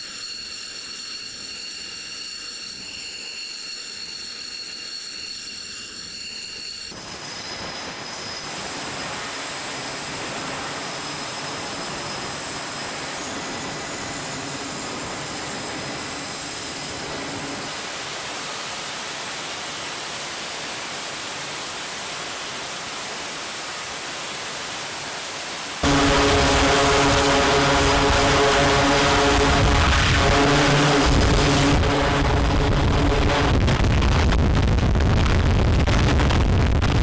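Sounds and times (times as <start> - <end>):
faint whining tones: 0.0 - 17.7
aircraft engines rushing: 7.0 - 18.4, 25.7 - 36.3.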